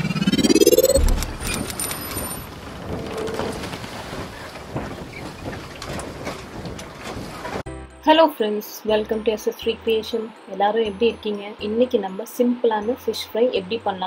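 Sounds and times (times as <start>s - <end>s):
low boom: 0.0s - 1.7s
rising whoosh: 0.0s - 1.9s.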